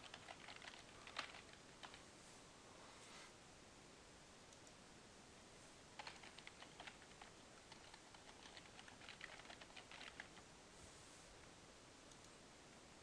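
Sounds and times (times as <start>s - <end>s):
faint typing on a keyboard: 0.0s - 2.1s, 4.5s - 4.8s, 6.0s - 10.5s, 11.4s - 12.4s.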